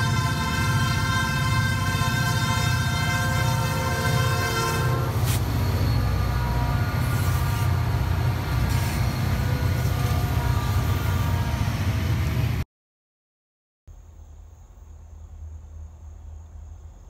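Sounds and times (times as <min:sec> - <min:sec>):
high axle squeal: 0:00.0 - 0:11.8
train air horn chord: 0:00.0 - 0:11.9
locomotive engines and wheels rumbling: 0:00.0 - 0:12.6, 0:14.3 - 0:17.0.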